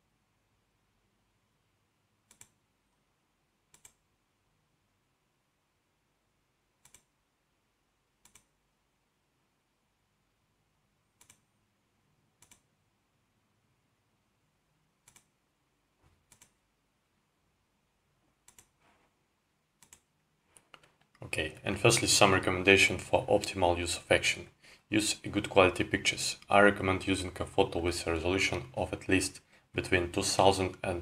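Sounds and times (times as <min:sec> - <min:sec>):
computer mouse clicking: 0:02.2 - 0:02.6, 0:03.7 - 0:04.0, 0:06.8 - 0:07.2, 0:08.2 - 0:08.6, 0:11.2 - 0:11.5, 0:12.4 - 0:12.7, 0:15.0 - 0:15.4, 0:16.2 - 0:16.6, 0:18.4 - 0:18.8, 0:19.8 - 0:21.2.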